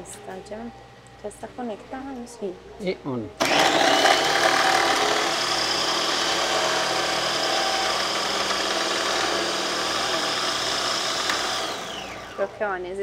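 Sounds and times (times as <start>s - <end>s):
food processor running: 3.4s - 12.6s.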